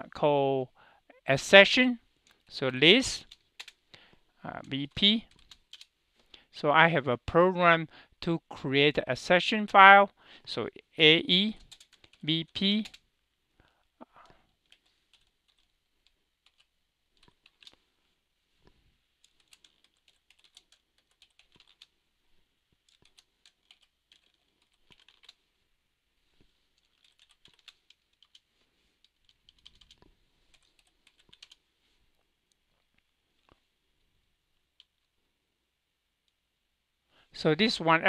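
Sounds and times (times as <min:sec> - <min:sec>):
computer keyboard typing: 0:03.2 - 0:03.8, 0:04.9 - 0:05.9, 0:11.6 - 0:13.0, 0:14.6 - 0:17.8, 0:19.2 - 0:21.9, 0:22.8 - 0:25.4, 0:26.8 - 0:28.4, 0:29.0 - 0:31.6.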